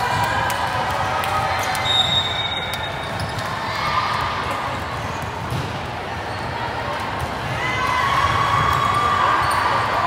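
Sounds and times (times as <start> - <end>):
hubbub of voices: 0.0 - 10.0.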